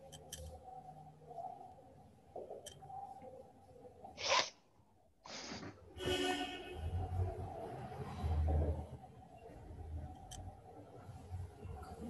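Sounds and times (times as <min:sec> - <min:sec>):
marker scratching on whiteboard: 0:04.2 - 0:04.5.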